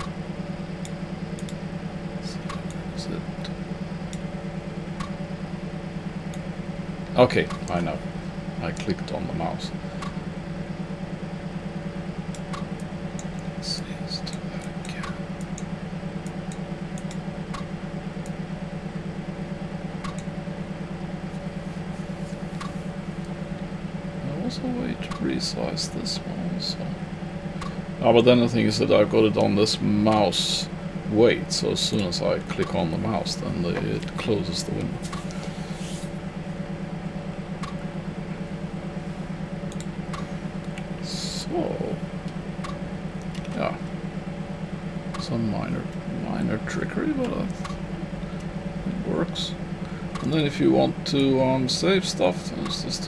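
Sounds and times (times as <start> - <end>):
low pulsing machine hum: 0.0 - 53.0
computer mouse clicks: 0.8 - 1.6, 20.0 - 20.3
faint clicks: 0.8 - 1.6, 14.2 - 18.4.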